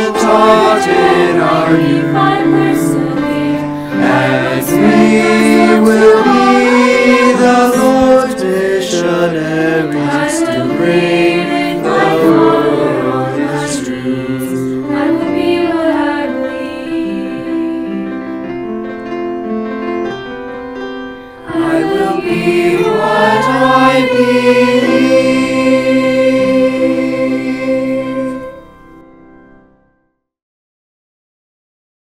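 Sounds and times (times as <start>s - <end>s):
choir singing in parts: 0.0s - 18.2s, 21.4s - 28.9s.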